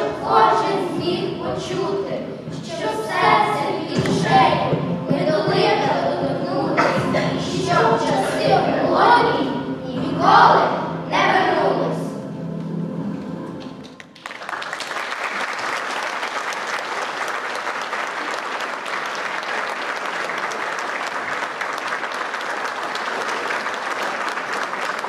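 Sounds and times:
audience applause: 13.8s - 25.0s.

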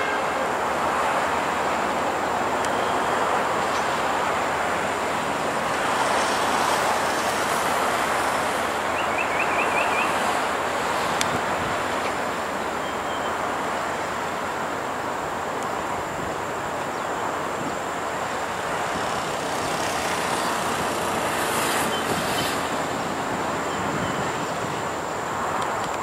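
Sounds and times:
electric train rumbling on track: 0.0s - 26.0s.

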